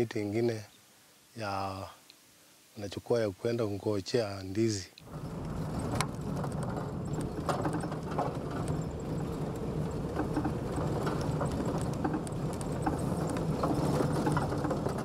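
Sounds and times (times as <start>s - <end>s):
engine and road rumble: 5.0s - 15.0s
rattles and knocks: 5.1s - 15.0s.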